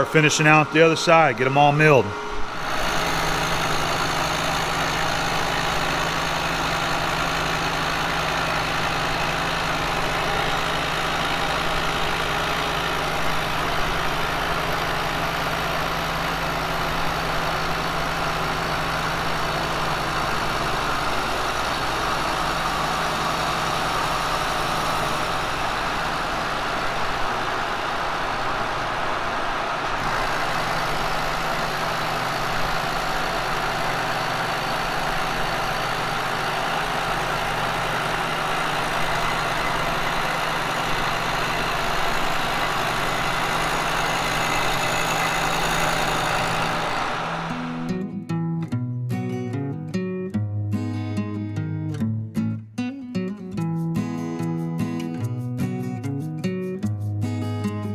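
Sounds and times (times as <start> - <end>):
milling machine cutting metal: 0.0 - 28.1, 30.0 - 48.0
constant machine hum: 0.0 - 48.0.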